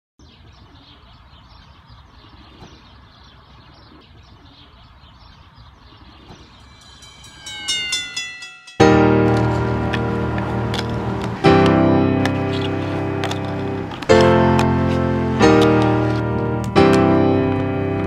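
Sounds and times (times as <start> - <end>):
metallic ringing high tones: 6.5 - 10.0
freight train rumbling past: 6.6 - 14.0.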